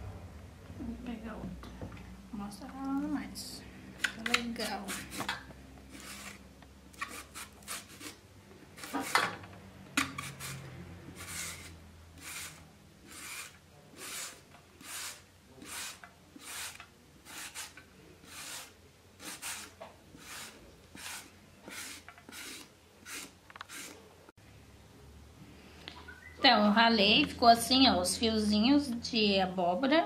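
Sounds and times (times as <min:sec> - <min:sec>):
grater rasping on vegetable: 0:04.6 - 0:05.3, 0:05.9 - 0:06.4, 0:07.0 - 0:08.2, 0:10.1 - 0:24.1.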